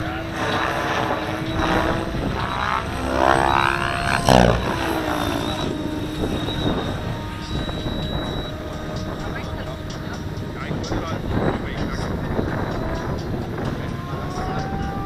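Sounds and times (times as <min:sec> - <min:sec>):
model helicopter rotor: 0:00.0 - 0:15.0.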